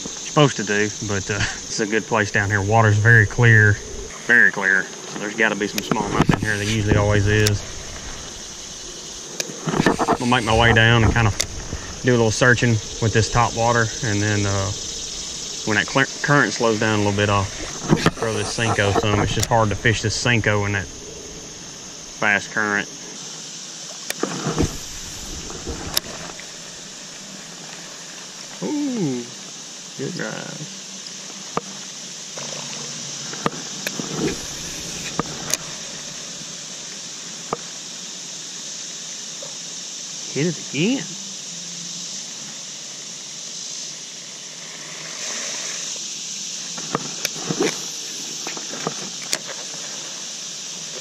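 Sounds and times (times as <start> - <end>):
sharp clicks: 5.7 - 12.0.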